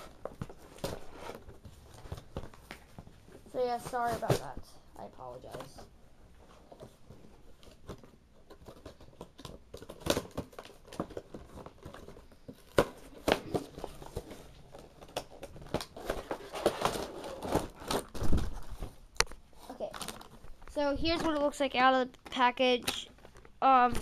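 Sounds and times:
plastic packaging crinkling: 0:08.6 - 0:20.8.

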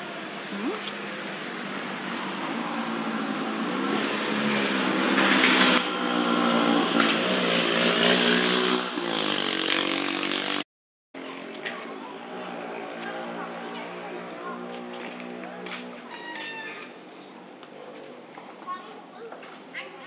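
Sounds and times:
engine running close by: 0:00.0 - 0:10.6.

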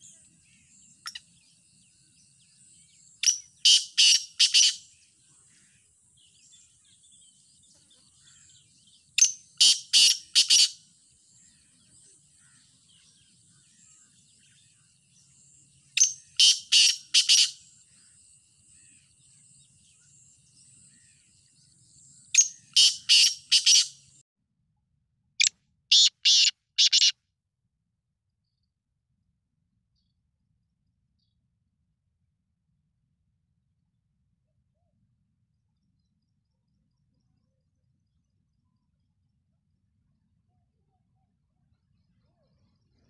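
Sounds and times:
francolin calling: 0:03.2 - 0:04.9, 0:09.2 - 0:10.8, 0:16.0 - 0:17.6, 0:22.4 - 0:24.0, 0:25.4 - 0:27.1.

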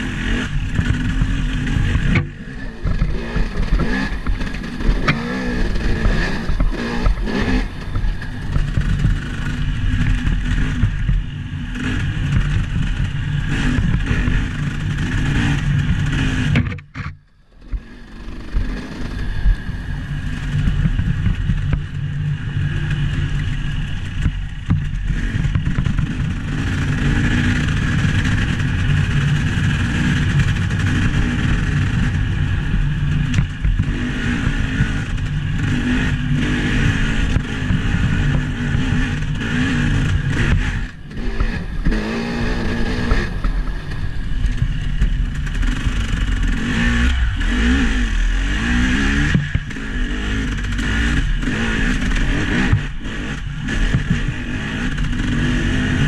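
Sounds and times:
vehicle engine revving: 0:00.0 - 0:56.0.

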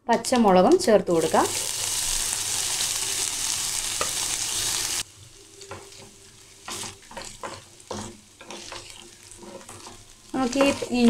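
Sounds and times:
food sizzling in hot oil: 0:01.1 - 0:11.0
wooden spatula scraping pan: 0:05.6 - 0:11.0.

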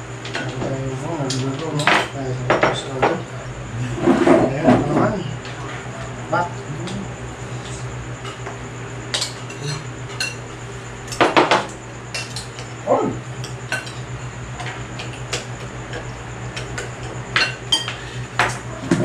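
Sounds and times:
cutlery clinking on ceramic bowls: 0:16.6 - 0:18.6.

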